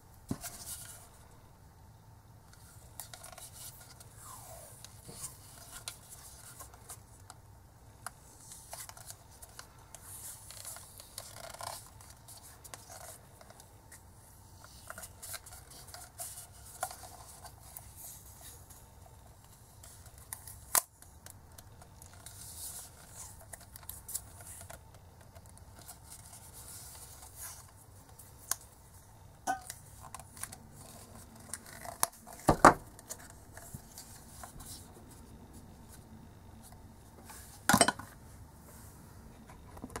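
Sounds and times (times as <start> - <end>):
rubber sleeve clicks and rubbing: 8.0 - 14.0.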